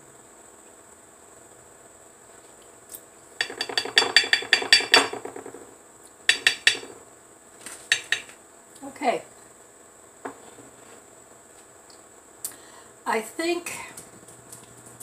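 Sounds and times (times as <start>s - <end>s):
utensil clinking on ceramic dish: 3.4s - 5.2s.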